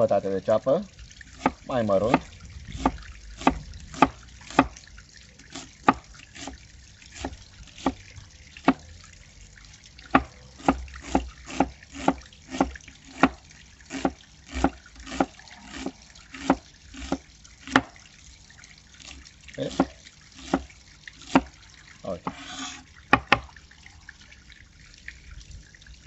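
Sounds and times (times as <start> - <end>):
cleaver chopping on wooden board: 1.4 - 4.8, 7.2 - 8.0, 8.6 - 8.8, 10.1 - 17.9, 19.7 - 21.5, 22.3 - 23.5.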